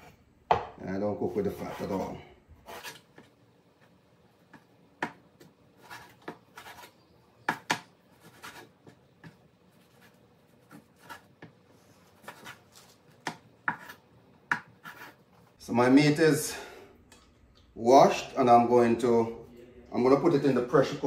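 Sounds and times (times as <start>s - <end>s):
knife cutting and scraping meat: 1.4s - 3.2s, 5.8s - 7.1s, 9.8s - 13.1s.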